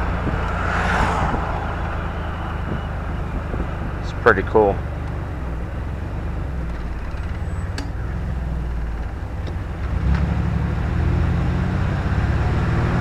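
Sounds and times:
van engine and tyre rumble: 0.0s - 13.0s.

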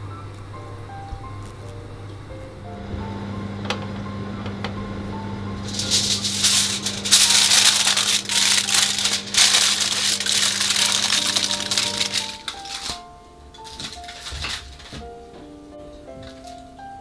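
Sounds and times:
aluminium foil crinkling: 5.6s - 15.3s, 16.0s - 16.8s.

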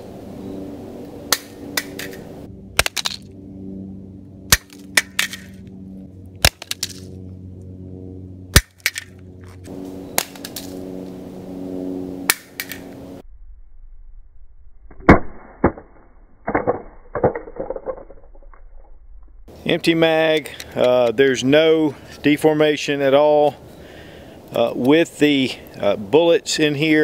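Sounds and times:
cartridges rattling: 1.3s - 3.3s, 4.5s - 5.6s, 6.4s - 7.2s, 8.6s - 9.6s, 12.3s - 12.9s
magazines clattering on ground: 2.8s - 3.2s, 4.6s - 5.6s, 6.5s - 7.1s, 8.7s - 10.8s.

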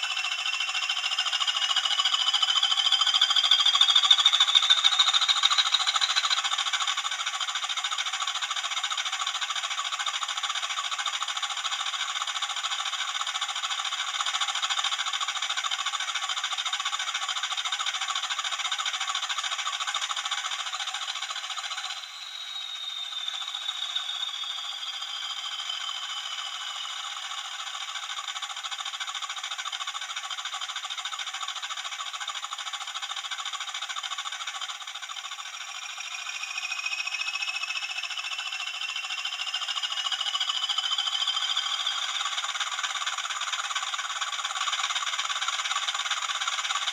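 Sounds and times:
model locomotive engine idling: 0.0s - 46.9s
high falling whistle: 22.0s - 26.6s
rising whistle: 22.0s - 27.0s.

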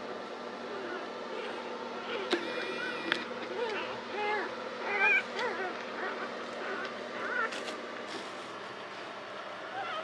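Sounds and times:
puppy squeaking: 1.4s - 7.6s.

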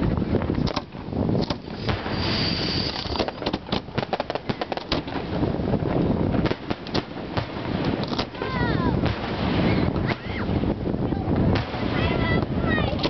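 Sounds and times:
firework crackling pops: 0.0s - 13.0s
firework hissing rush: 1.4s - 5.8s.

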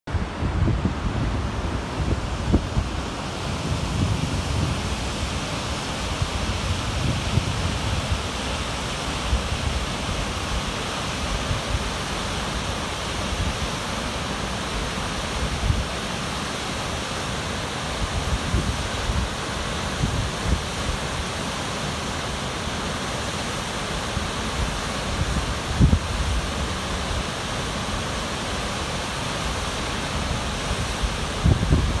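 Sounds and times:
wind buffeting microphone: 0.1s - 8.5s, 24.7s - 26.6s, 30.9s - 32.0s
waterfall rushing: 0.1s - 32.0s.

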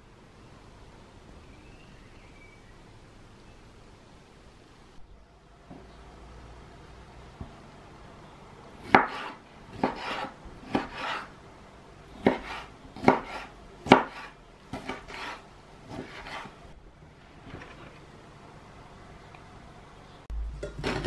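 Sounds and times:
knife chopping on wooden board: 8.8s - 11.3s, 12.2s - 16.6s
knife cutting swish: 12.2s - 16.6s.

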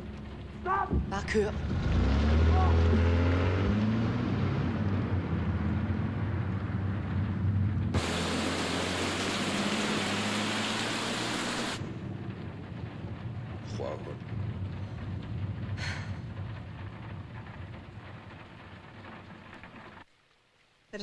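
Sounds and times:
rain hissing on car: 0.0s - 3.9s, 4.5s - 21.0s
low engine hum: 0.0s - 20.0s
bright hiss: 8.0s - 11.8s.

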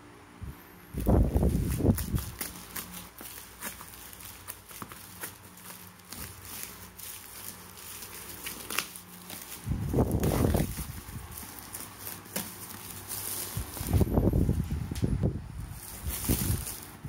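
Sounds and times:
plastic crinkling: 0.9s - 17.0s
scissors snipping plastic: 1.0s - 14.0s.

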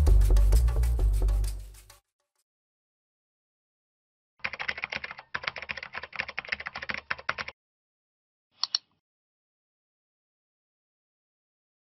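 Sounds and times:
keyboard typing: 4.4s - 7.6s, 8.6s - 8.9s
mouse double click: 8.6s - 9.0s.

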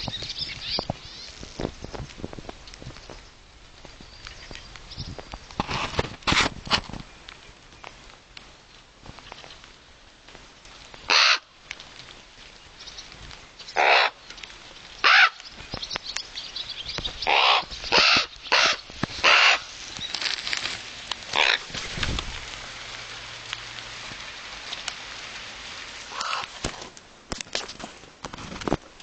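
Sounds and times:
ravens calling: 11.0s - 11.6s, 12.8s - 21.9s, 22.5s - 26.7s.

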